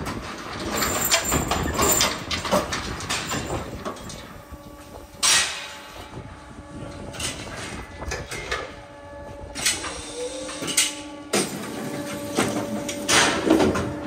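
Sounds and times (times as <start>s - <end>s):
metal clattering and knocking: 0.0s - 4.2s.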